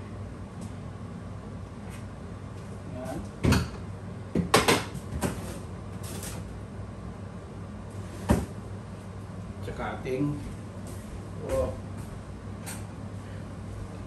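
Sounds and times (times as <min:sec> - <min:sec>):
knocks and clatter in a cupboard: 0:03.4 - 0:05.5.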